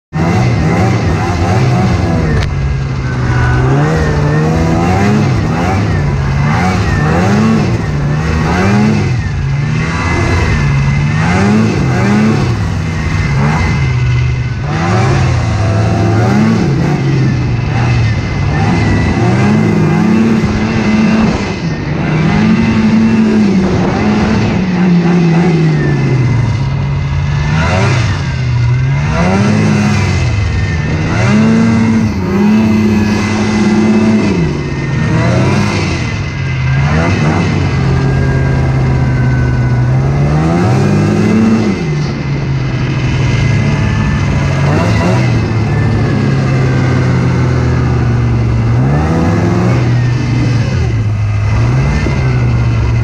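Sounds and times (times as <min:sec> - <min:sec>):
snowmobile engine revving: 0:00.1 - 0:53.0.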